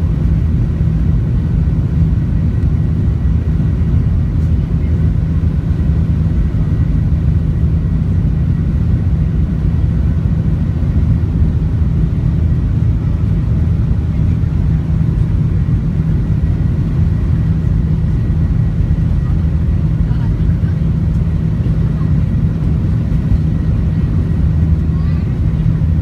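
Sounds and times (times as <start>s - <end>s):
jet engines rumbling in cabin: 0.0s - 26.0s.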